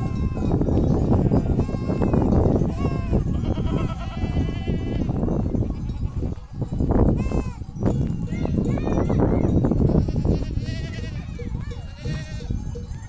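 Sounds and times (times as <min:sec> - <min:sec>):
sheep bleating: 0:00.0 - 0:05.2, 0:10.0 - 0:12.5.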